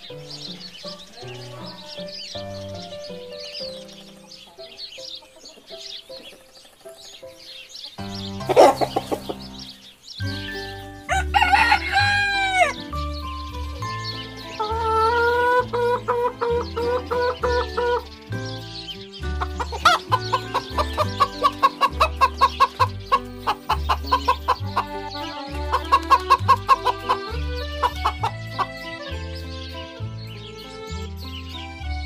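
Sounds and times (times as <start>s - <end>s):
chickens clucking: 0.0s - 31.9s.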